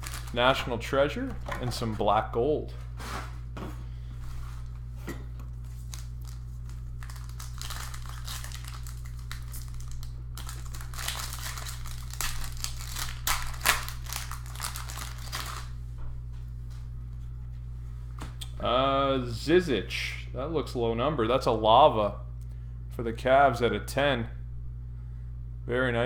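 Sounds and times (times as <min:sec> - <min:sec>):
foil pack crinkling: 0:00.0 - 0:01.3, 0:05.6 - 0:15.7.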